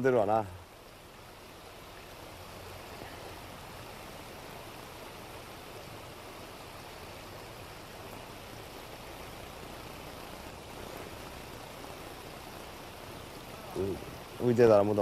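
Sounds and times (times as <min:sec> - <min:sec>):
river water rushing over gravel: 0:00.0 - 0:15.0.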